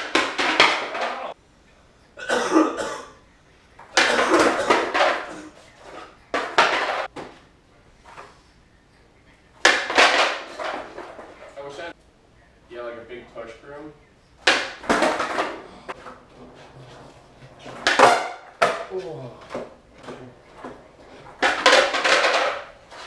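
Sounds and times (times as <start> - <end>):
skateboard smacking concrete floor: 0.0 - 1.4, 3.8 - 7.4, 9.6 - 11.5, 14.4 - 23.0
skateboard wheels rattling and rolling: 14.4 - 18.9, 19.5 - 23.0.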